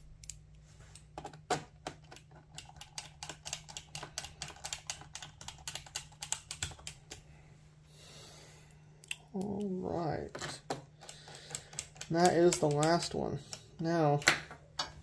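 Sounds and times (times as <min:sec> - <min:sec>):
screwdriver clicking into plastic: 0:10.6 - 0:13.2.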